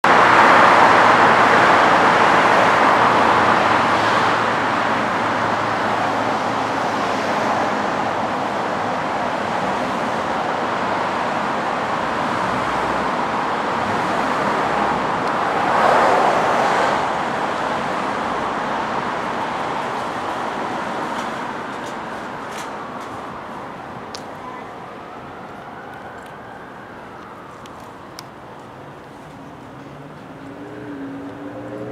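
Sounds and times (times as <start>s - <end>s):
street traffic noise: 0.0s - 31.9s
vehicle passing loudly: 12.2s - 21.6s, 29.8s - 31.9s.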